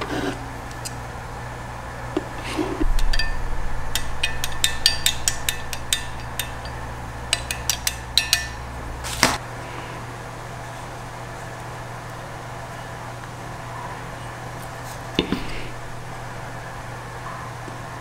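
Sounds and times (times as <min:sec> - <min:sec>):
steady low hum: 0:00.0 - 0:18.0
metal clicks and taps: 0:03.9 - 0:08.6.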